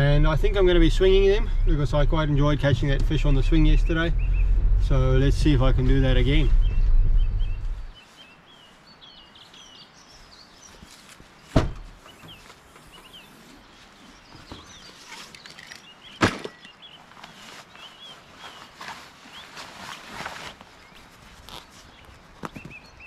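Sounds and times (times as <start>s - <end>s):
low rumble: 0.0s - 8.0s
small birds chirping: 0.0s - 23.0s
sharp knocks: 11.5s - 11.9s.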